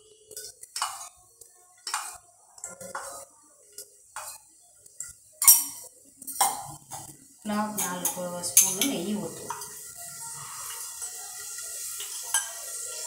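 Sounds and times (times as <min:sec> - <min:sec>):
spoon clinking on steel container: 0:05.4 - 0:06.7, 0:07.7 - 0:09.7, 0:12.0 - 0:12.8.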